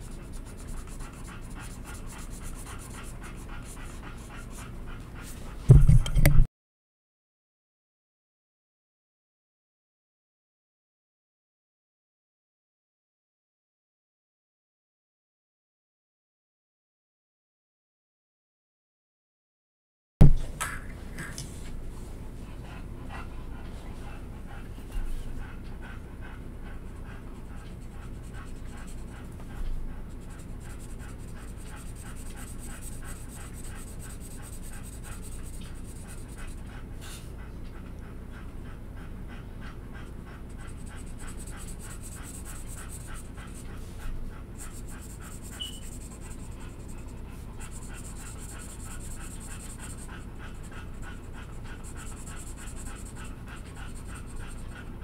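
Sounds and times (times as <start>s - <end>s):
marker scribbling on paper: 0.0s - 4.5s, 30.1s - 36.6s, 40.7s - 43.6s, 44.6s - 50.1s.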